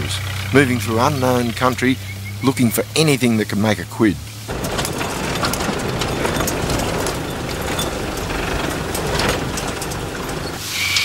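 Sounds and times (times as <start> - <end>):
moving vehicle noise: 0.0 - 11.0
car engine running: 4.4 - 10.6
vehicle body rattles: 4.5 - 10.7.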